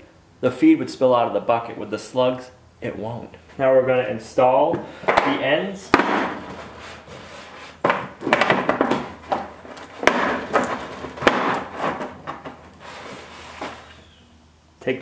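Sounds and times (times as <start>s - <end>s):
sharp knock: 5.1s - 6.4s.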